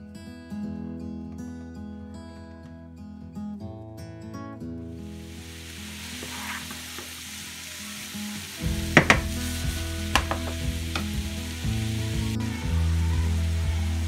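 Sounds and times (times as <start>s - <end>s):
food sizzling in a frying pan: 5.0s - 14.0s
spatula tapping and scraping pan: 9.0s - 9.4s, 10.2s - 11.1s.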